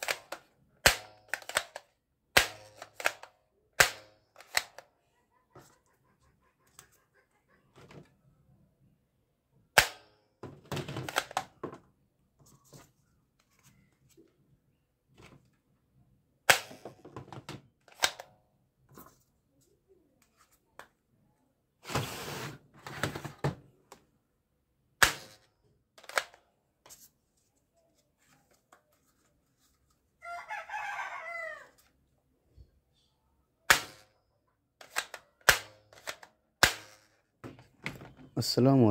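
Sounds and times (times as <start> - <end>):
toy gun mechanism clicks: 0.0 - 4.9, 17.9 - 18.3, 25.0 - 26.4, 34.8 - 37.2
plastic clattering: 10.4 - 11.9.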